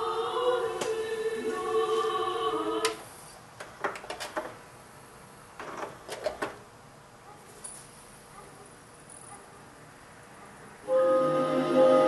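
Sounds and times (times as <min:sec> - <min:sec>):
music with singing: 0:00.0 - 0:03.0.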